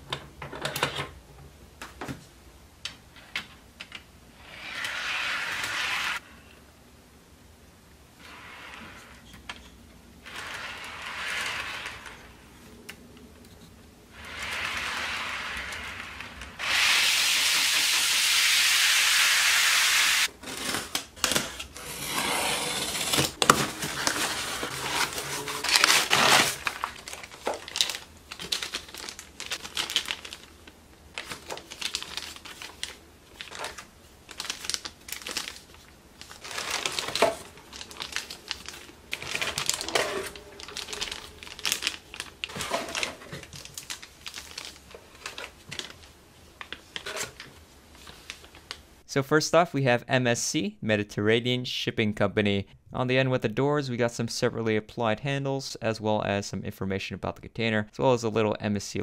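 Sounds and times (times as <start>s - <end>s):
loud steady hiss: 14.1s - 20.3s
cardboard box rustling: 23.1s - 30.3s
plastic bags crinkling: 23.2s - 48.9s.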